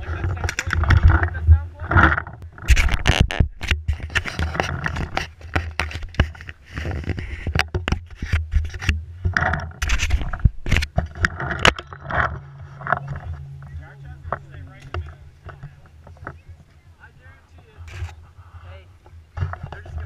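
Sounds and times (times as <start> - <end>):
camera handling knocks and scrapes: 1.9 - 13.4
steady low rumble: 8.4 - 20.0.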